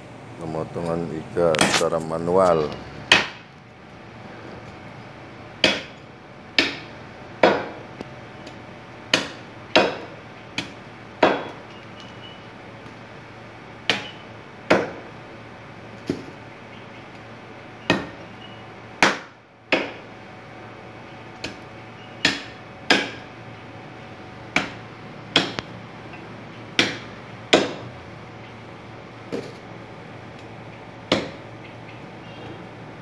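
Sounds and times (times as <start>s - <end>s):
cleaver chopping ribs on wooden block: 3.1s - 3.4s, 5.6s - 7.8s, 9.1s - 11.6s, 13.9s - 15.1s, 17.8s - 18.2s, 19.0s - 20.1s, 22.2s - 23.3s, 24.5s - 25.7s, 26.8s - 27.9s, 31.1s - 31.4s.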